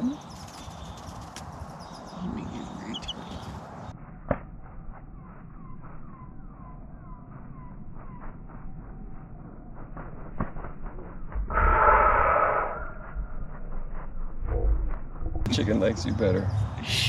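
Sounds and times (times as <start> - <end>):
small birds chirping: 0.0 - 3.9, 15.5 - 17.0
chick peeping: 2.4 - 3.5.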